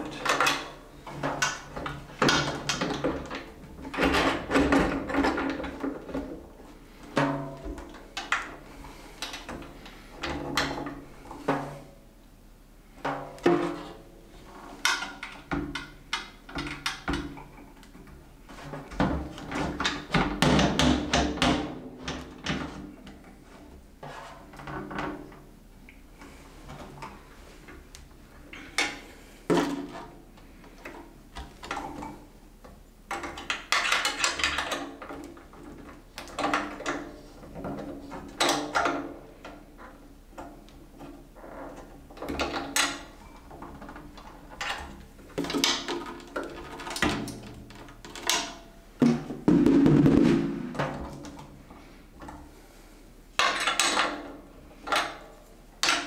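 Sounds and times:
drum hardware clunks and rattles: 0:49.0 - 0:51.4.

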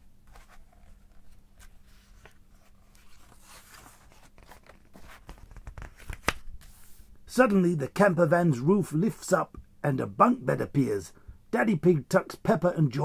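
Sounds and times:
paper page rustling: 0:00.3 - 0:07.0.

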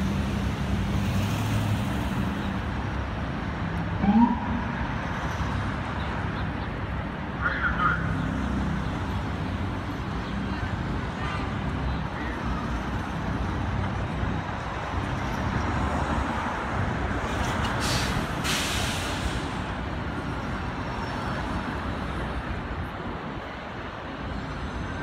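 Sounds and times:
street traffic passing: 0:00.0 - 0:25.0
air brakes hissing: 0:17.8 - 0:19.6.

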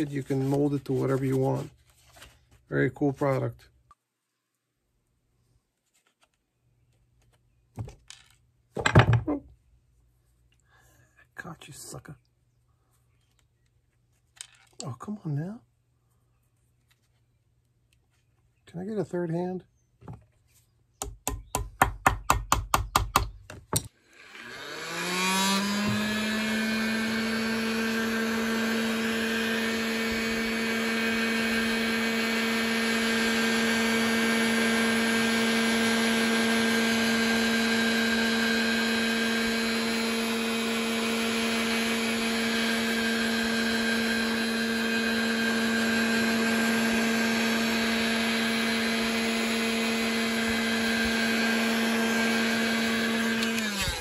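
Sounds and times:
heat gun fan whining: 0:23.9 - 0:54.0.

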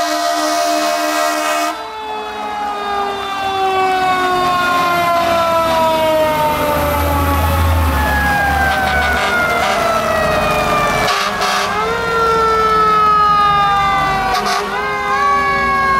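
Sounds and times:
fire engine air horn blast: 0:00.0 - 0:02.5, 0:08.6 - 0:10.1, 0:11.0 - 0:12.0, 0:14.1 - 0:15.0
siren wailing: 0:00.0 - 0:15.9
truck engine rumbling: 0:01.0 - 0:15.9.

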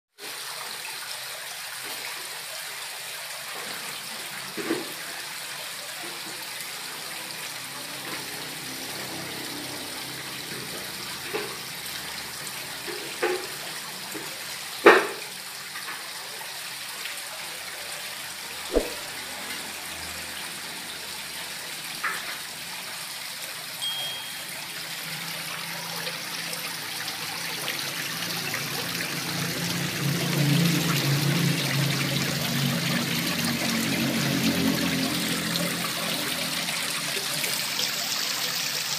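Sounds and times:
water trickling down rock wall: 0:00.2 - 0:38.9
water plops and splashes: 0:18.7 - 0:19.2.

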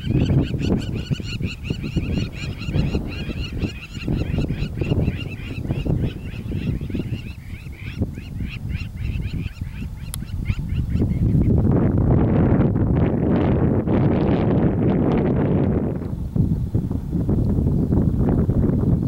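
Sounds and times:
wild dogs twittering: 0:00.0 - 0:11.2
wind rumble on microphone: 0:00.0 - 0:19.0.

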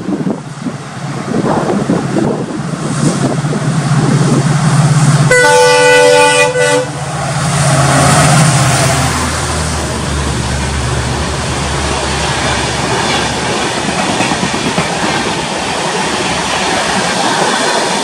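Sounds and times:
diesel locomotive engine drone: 0:00.0 - 0:18.0
passing train rumble: 0:00.0 - 0:18.0
train air horn: 0:05.3 - 0:07.0.

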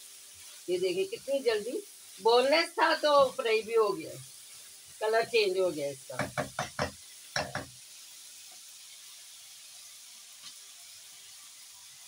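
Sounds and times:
food sizzling in oil: 0:00.0 - 0:12.0.

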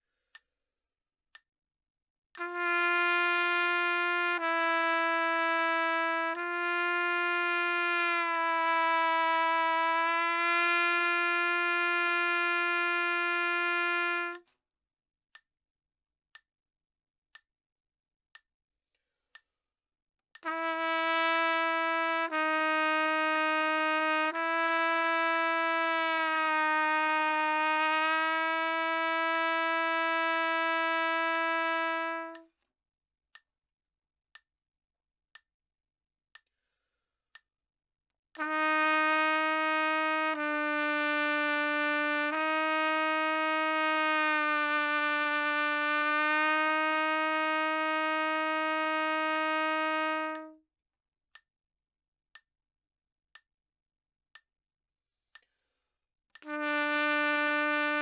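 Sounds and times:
trumpet bending notes: 0:02.4 - 0:14.4, 0:20.4 - 0:32.5, 0:38.4 - 0:50.6, 0:56.4 - 0:58.0.

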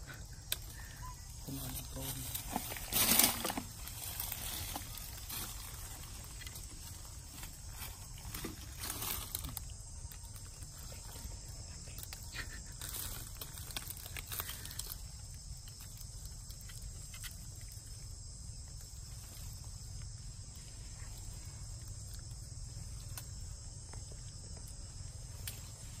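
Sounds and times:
forest insects droning: 0:00.0 - 0:26.0
rustling on leaf litter: 0:00.8 - 0:11.3.

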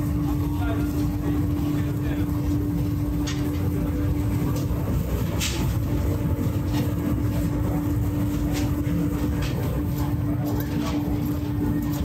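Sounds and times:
constant hum: 0:00.0 - 0:12.0
low mechanical rumble: 0:00.0 - 0:12.0.

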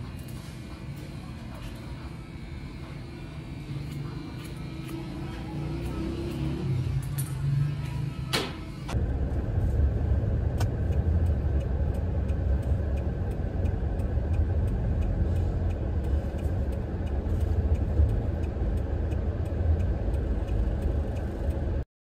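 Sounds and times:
engine and road rumble: 0:00.0 - 0:21.8
faint regular ticks: 0:10.6 - 0:21.8.

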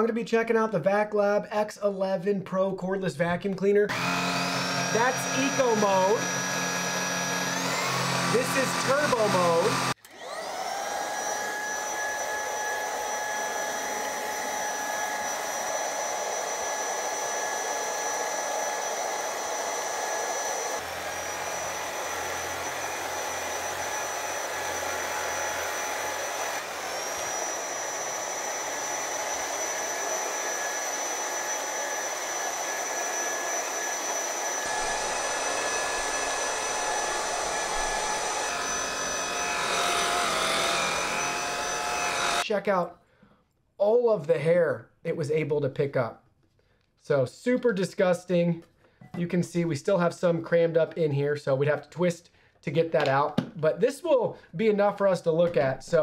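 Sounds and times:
vacuum cleaner motor whine: 0:03.9 - 0:42.5.

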